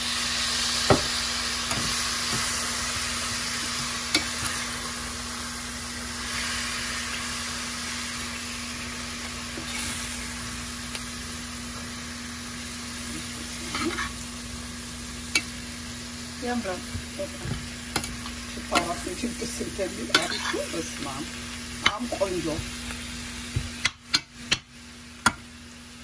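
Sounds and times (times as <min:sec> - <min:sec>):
chicken sizzling in a frying pan: 0:00.0 - 0:26.0
metal spoon knocking pan: 0:21.8 - 0:22.6.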